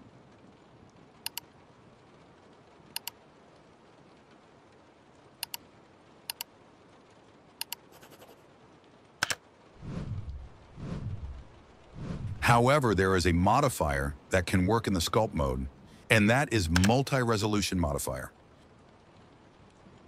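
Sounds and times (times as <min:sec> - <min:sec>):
loud low sound: 0:09.8 - 0:12.9.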